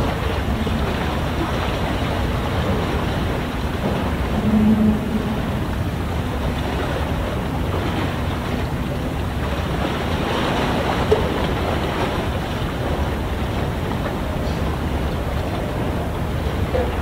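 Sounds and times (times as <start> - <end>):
low rumble: 0.0 - 17.0
short low tone: 4.3 - 5.9.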